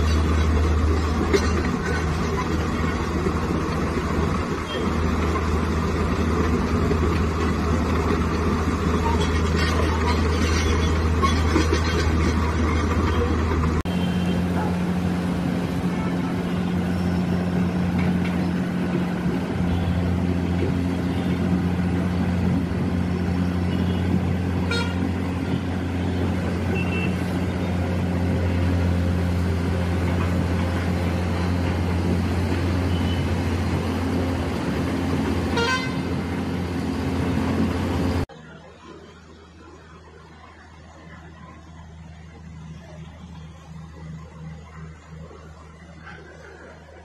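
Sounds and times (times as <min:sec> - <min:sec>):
excavator diesel engine humming: 0:00.0 - 0:47.0
horn toots: 0:23.7 - 0:27.3, 0:35.4 - 0:36.2.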